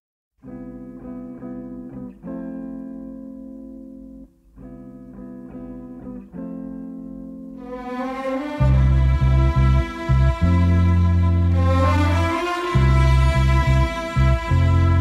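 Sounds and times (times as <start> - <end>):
orchestral string chords: 7.6 - 15.0.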